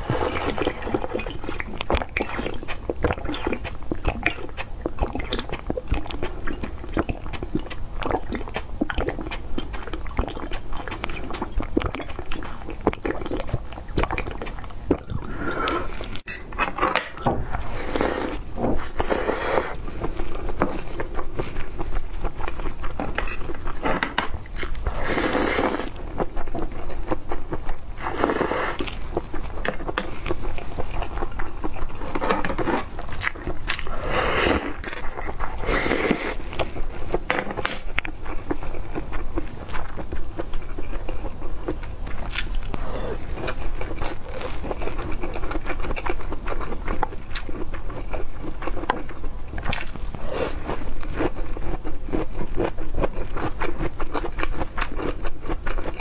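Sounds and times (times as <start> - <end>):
slurping from a glass: 0.0 - 1.5, 15.0 - 19.9, 24.9 - 25.9, 33.8 - 36.7
wet chewing: 0.0 - 56.0.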